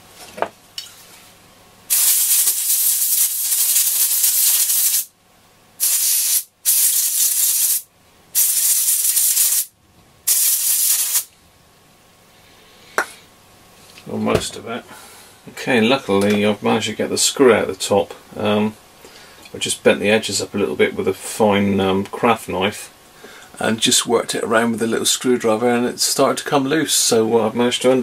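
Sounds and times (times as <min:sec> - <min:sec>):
aerosol can spraying: 0:01.9 - 0:05.1, 0:05.8 - 0:09.7, 0:10.3 - 0:11.3.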